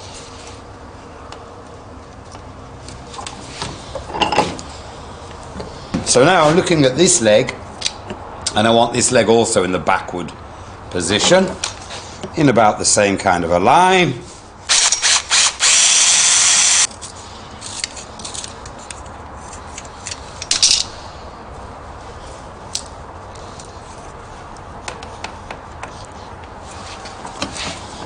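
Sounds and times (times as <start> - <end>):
cordless drill boring wood: 14.7 - 16.9.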